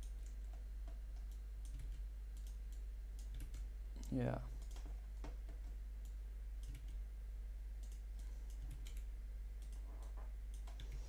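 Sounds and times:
keyboard and mouse clicks: 0.0 - 7.0, 7.8 - 11.0
low electrical hum: 0.0 - 11.0.

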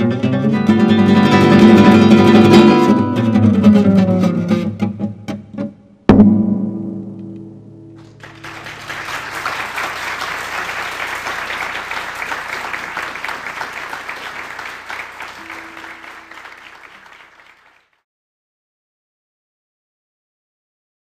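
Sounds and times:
audience applauding: 8.0 - 18.0.

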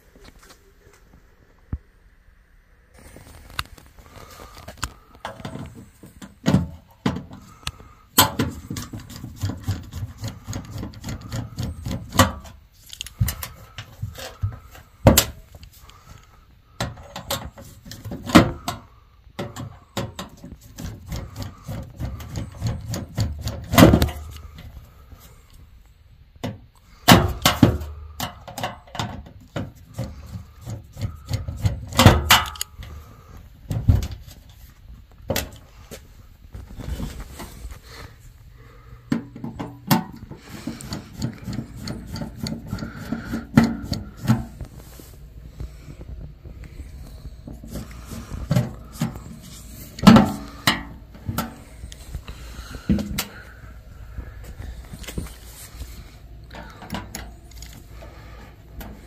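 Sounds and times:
tools and metal parts knocking: 8.2 - 15.4, 26.4 - 32.9.

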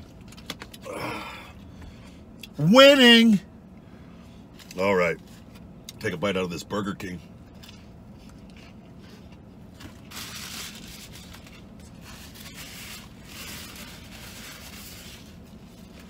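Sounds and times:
person chewing food: 7.5 - 10.0.

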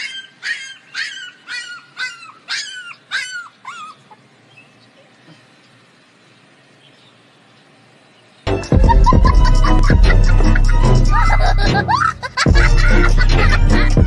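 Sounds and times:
puppy yelping: 0.0 - 4.3.

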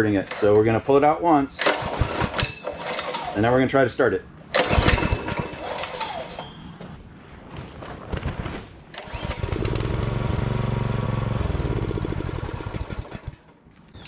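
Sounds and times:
pull-starting tiller engine: 0.1 - 0.8, 1.6 - 3.6, 4.5 - 6.5, 8.9 - 13.6
tiller engine running: 1.6 - 3.5, 4.5 - 6.5, 9.0 - 13.6.

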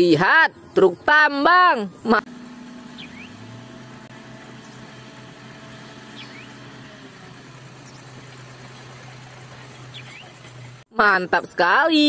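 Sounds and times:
diesel engines low hum: 0.0 - 10.9.

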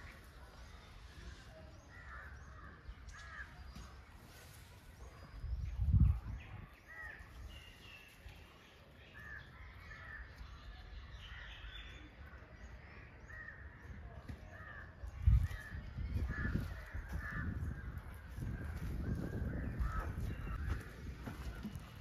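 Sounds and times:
birds calling: 0.0 - 22.0.

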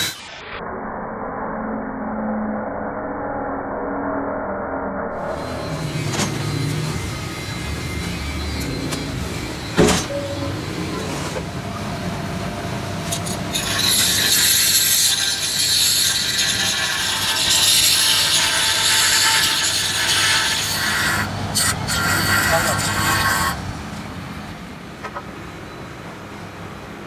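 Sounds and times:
abrasive disc grinding metal: 5.2 - 12.2, 12.9 - 23.6.

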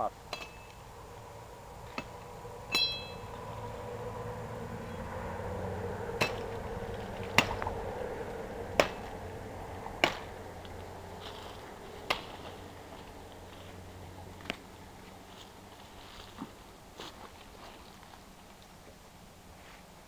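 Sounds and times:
machete chopping tree branch: 6.2 - 7.8, 8.7 - 9.2, 10.0 - 10.4, 12.1 - 12.6.

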